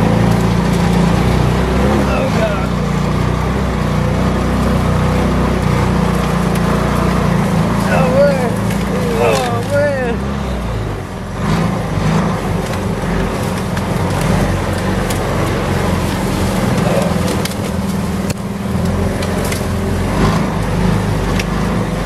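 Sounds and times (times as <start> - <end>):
small engine running: 0.0 - 22.0
cart knocking over rough ground: 11.8 - 20.6.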